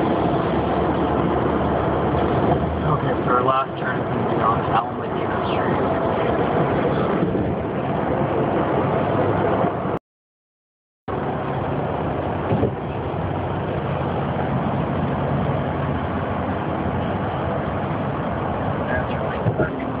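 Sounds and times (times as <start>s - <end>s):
vehicle road and engine noise: 0.0s - 10.0s, 11.1s - 20.0s
vehicle bump: 12.4s - 12.8s, 19.0s - 19.9s.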